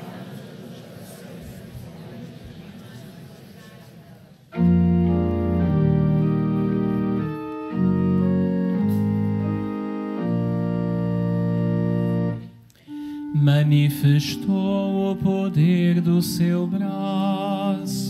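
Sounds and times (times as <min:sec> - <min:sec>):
organ playing sustained chords: 0:04.5 - 0:18.0.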